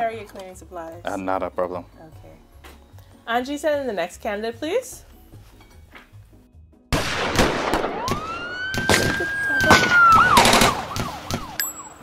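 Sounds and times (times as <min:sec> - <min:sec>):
gunshots cracking: 0:06.9 - 0:11.5
police siren wailing: 0:07.9 - 0:12.0.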